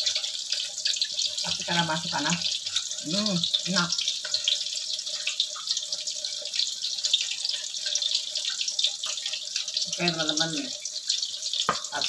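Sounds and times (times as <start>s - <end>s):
deep-frying in hot oil: 0.0s - 12.0s.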